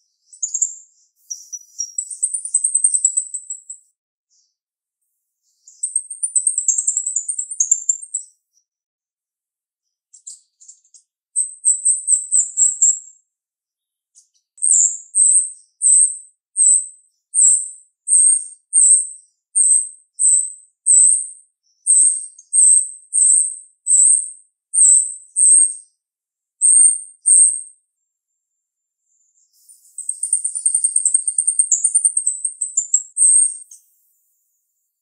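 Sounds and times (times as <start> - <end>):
starling chirping: 0.3 - 3.8, 5.6 - 8.3, 10.2 - 13.0, 14.6 - 21.3, 21.9 - 25.8, 26.6 - 27.7, 29.4 - 34.6.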